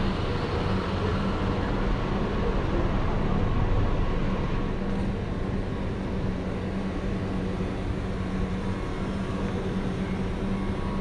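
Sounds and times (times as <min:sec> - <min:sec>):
low mechanical hum: 0:00.0 - 0:11.0
traffic noise: 0:00.0 - 0:11.0.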